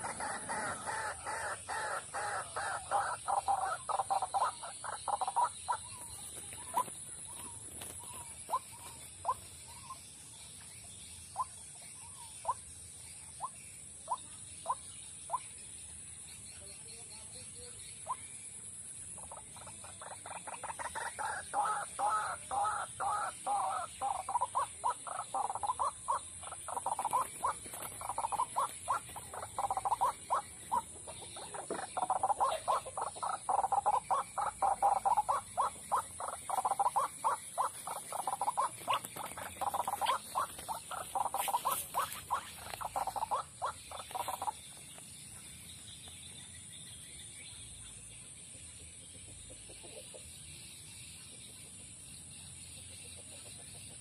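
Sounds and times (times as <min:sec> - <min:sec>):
waterhen croaking calls: 0:00.0 - 0:06.9, 0:19.2 - 0:44.6.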